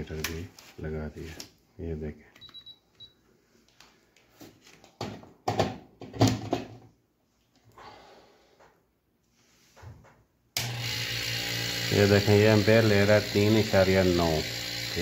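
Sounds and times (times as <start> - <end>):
refrigerator compressor humming: 10.6 - 15.0.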